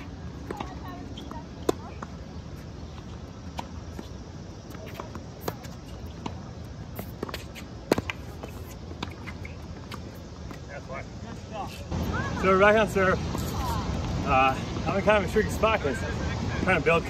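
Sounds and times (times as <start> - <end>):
footsteps on court: 0.0 - 10.8.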